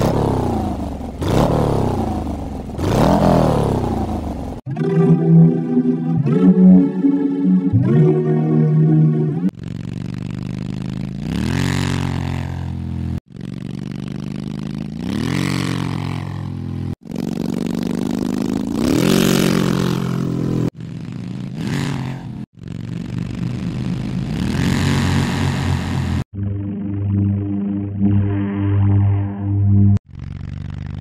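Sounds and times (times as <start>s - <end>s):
motorcycle engine revving: 0.0s - 4.7s, 9.5s - 28.2s, 30.0s - 31.0s.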